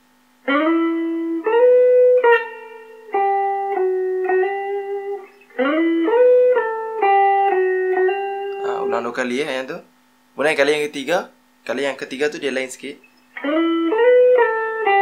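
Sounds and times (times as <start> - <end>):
clean electric guitar melody: 0.4 - 9.0, 13.2 - 15.0.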